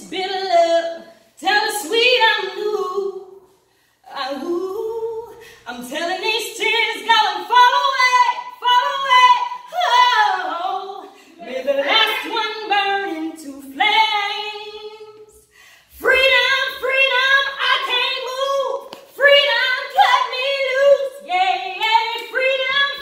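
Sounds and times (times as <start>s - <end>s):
woman singing unaccompanied: 4.1s - 15.4s, 16.0s - 23.0s.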